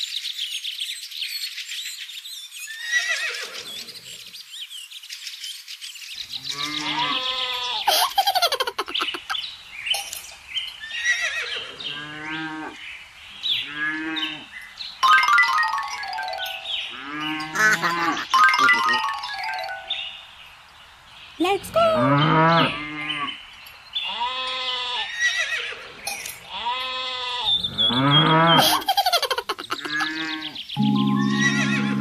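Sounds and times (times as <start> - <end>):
birds chirping: 0.0 - 26.6, 27.3 - 32.0
cow mooing: 6.4 - 7.8, 16.9 - 18.3, 26.6 - 28.6, 30.0 - 32.0.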